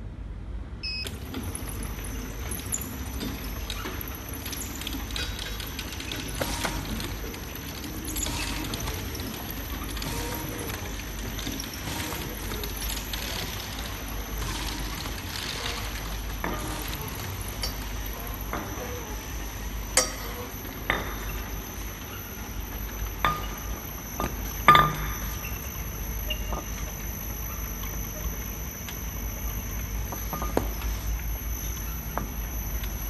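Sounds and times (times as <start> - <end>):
machine humming: 0.8 - 33.0
glass bottles clinking: 23.1 - 27.0.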